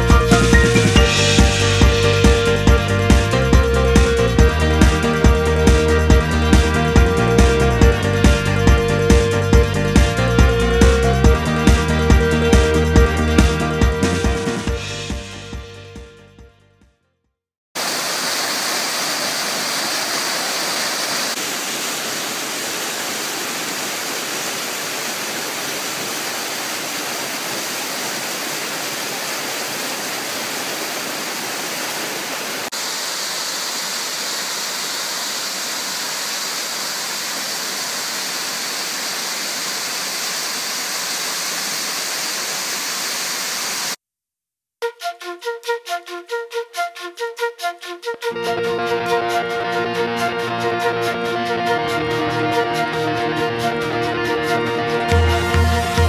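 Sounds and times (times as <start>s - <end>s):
stream rushing over rocks: 17.8s - 44.0s.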